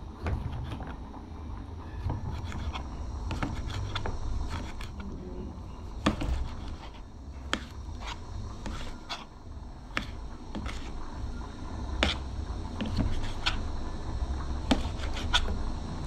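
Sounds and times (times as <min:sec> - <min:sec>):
knife slicing tomato: 0:02.3 - 0:05.1, 0:06.0 - 0:09.3, 0:09.9 - 0:11.0, 0:12.0 - 0:13.6, 0:14.6 - 0:15.6.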